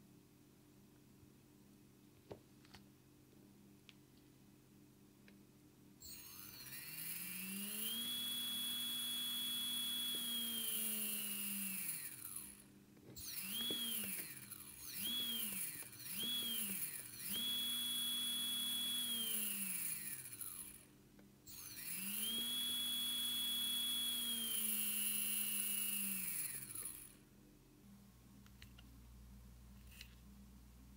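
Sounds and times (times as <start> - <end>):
electric motor whining: 6.0 - 12.6, 13.2 - 20.8, 21.5 - 27.2.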